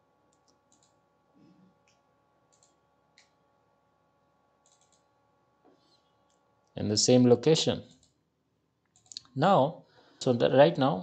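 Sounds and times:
faint computer mouse clicks: 0:00.3 - 0:01.0, 0:01.8 - 0:03.4, 0:04.6 - 0:05.1.

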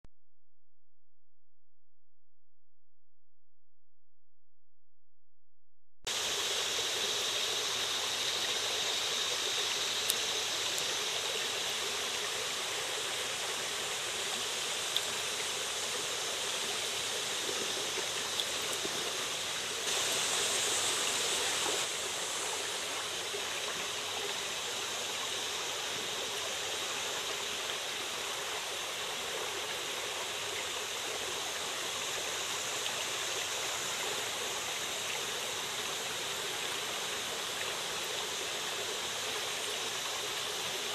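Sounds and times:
creek water running over rock: 0:06.1 - 0:40.9.

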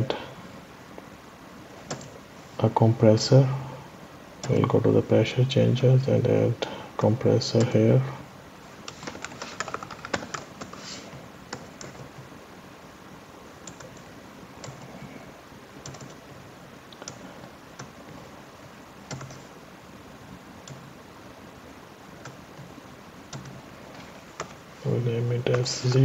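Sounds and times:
typing on computer keyboard: 0:01.9 - 0:02.1, 0:08.9 - 0:10.8, 0:13.6 - 0:14.8, 0:15.8 - 0:16.2, 0:17.0 - 0:17.2, 0:19.1 - 0:19.4, 0:23.3 - 0:23.6.

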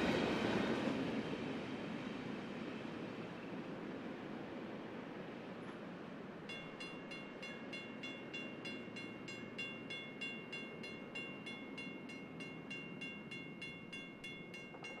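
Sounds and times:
freight train rumbling: 0:00.0 - 0:15.0
crossing bell ringing: 0:06.5 - 0:15.0.

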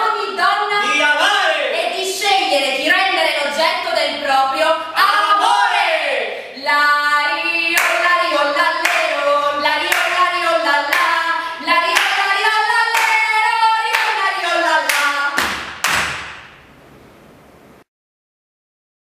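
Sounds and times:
man and woman singing: 0:00.0 - 0:01.9, 0:04.6 - 0:15.4
hands clapping: 0:07.8 - 0:08.0, 0:08.8 - 0:09.1, 0:09.9 - 0:10.2, 0:10.9 - 0:11.2, 0:12.0 - 0:12.3, 0:12.9 - 0:13.3, 0:13.9 - 0:14.2, 0:14.8 - 0:16.6.

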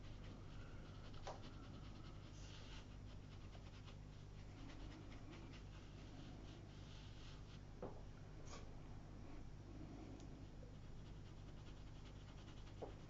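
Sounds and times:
brush strokes on paper: 0:00.0 - 0:07.7, 0:10.8 - 0:13.0
low steady hum: 0:00.0 - 0:13.0.

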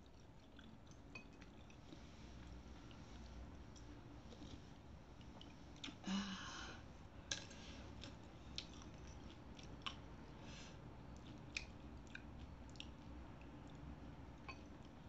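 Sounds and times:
chewing: 0:00.0 - 0:06.0, 0:07.3 - 0:10.1, 0:11.0 - 0:15.0.

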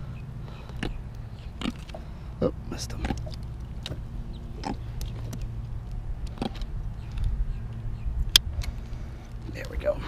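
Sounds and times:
low rumble: 0:00.0 - 0:10.0
fish grunting croaks: 0:00.6 - 0:05.2.

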